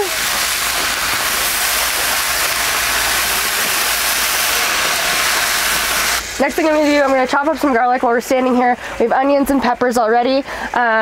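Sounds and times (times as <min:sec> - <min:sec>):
water sizzling in hot skillet: 0:00.0 - 0:09.1.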